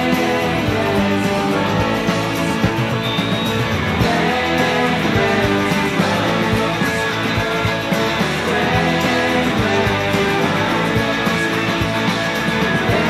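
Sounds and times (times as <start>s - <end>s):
rock guitars over a steady beat: 0.0s - 13.0s.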